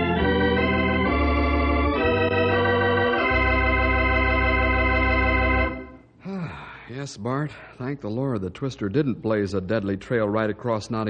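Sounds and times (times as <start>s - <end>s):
organ playing held chords: 0.0s - 6.1s.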